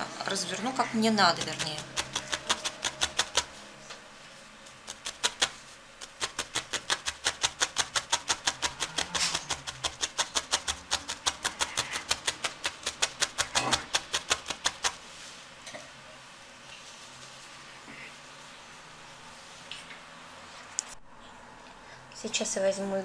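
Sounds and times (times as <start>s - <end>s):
felting needle poking wool: 0.5s - 3.6s, 4.8s - 15.0s.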